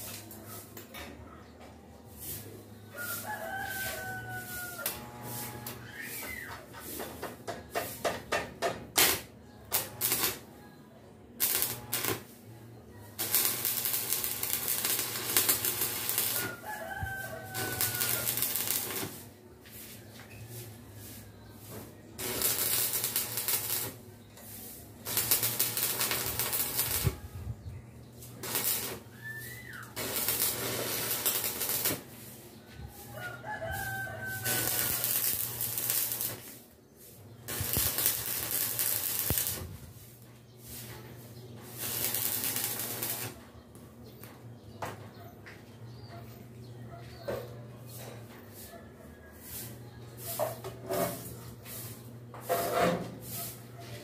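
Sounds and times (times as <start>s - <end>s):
roosters crowing: 2.2s - 6.7s, 13.2s - 19.9s, 22.2s - 24.0s, 25.0s - 36.6s, 37.5s - 39.7s, 41.6s - 43.5s
arc welding crackling: 3.0s - 10.5s, 11.4s - 12.5s, 13.1s - 20.0s, 20.6s - 27.6s, 28.2s - 32.4s, 33.0s - 36.7s, 37.4s - 43.4s.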